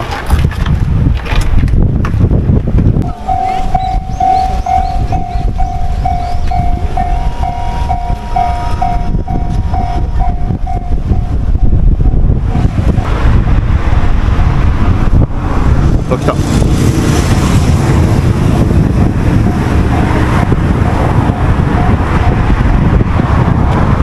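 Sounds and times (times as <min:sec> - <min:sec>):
loud low rumble: 0:00.8 - 0:24.0
level crossing warning bell ringing: 0:03.0 - 0:12.4.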